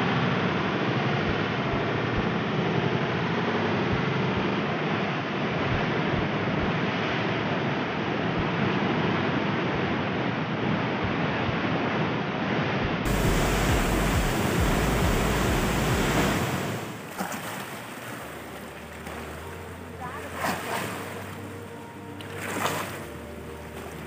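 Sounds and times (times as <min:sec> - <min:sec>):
water rushing through spillway: 0:13.0 - 0:24.0.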